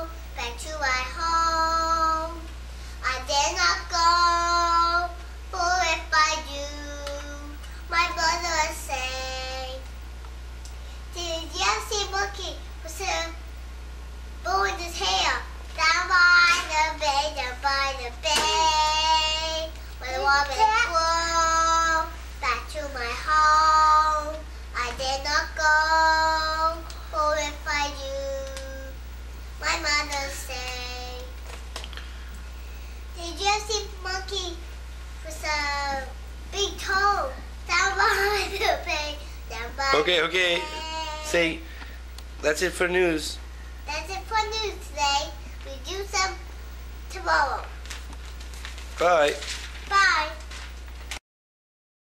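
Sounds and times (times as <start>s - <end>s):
child singing: 0.0s - 9.9s, 11.1s - 13.4s, 14.5s - 29.0s, 29.6s - 31.4s, 33.2s - 34.6s, 35.2s - 41.6s, 43.9s - 46.4s.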